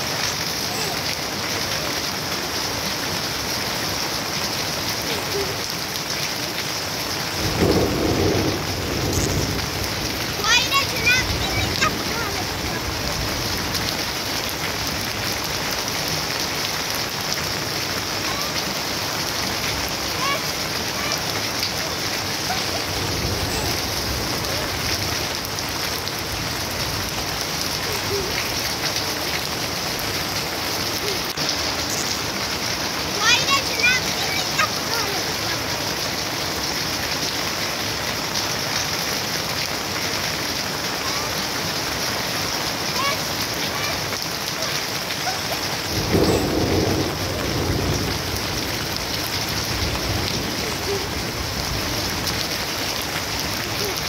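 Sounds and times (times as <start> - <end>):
rain falling on puddles and plants: 0.0 - 54.0
low rumble of thunder: 7.3 - 15.2, 22.2 - 28.6, 45.8 - 52.6.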